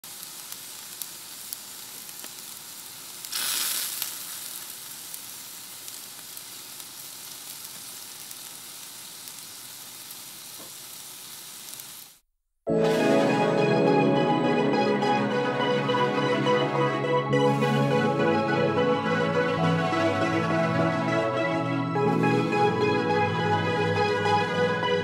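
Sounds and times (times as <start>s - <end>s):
crackling hiss: 0.0s - 12.2s.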